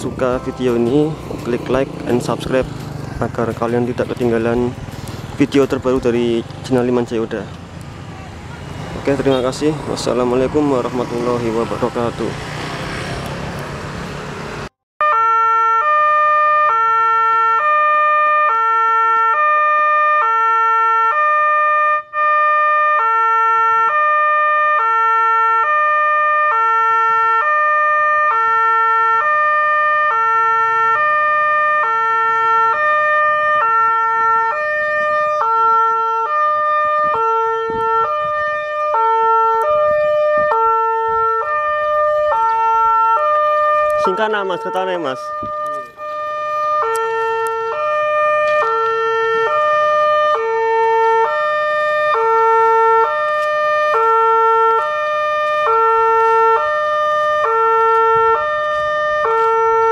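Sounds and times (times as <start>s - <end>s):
two-tone crossing alarm: 15.0s - 59.9s.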